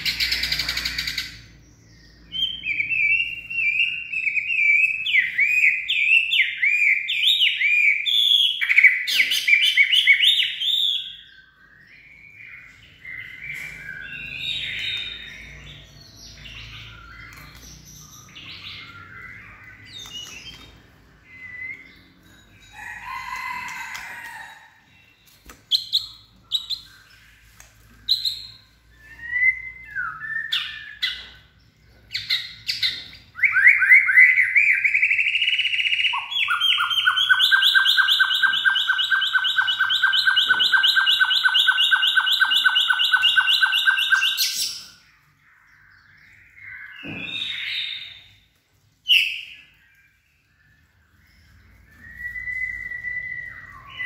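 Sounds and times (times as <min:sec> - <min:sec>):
bird whistles and chirps: 0:00.0 - 0:22.2, 0:25.2 - 0:54.0
fast loud bird trill: 0:33.4 - 0:44.9.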